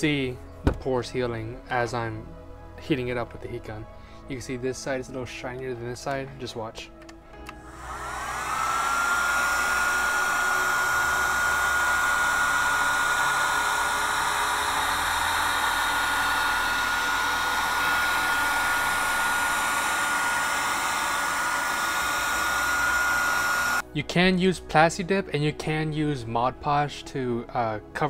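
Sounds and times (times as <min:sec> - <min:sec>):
heat gun whine and air rush: 0:07.5 - 0:23.8.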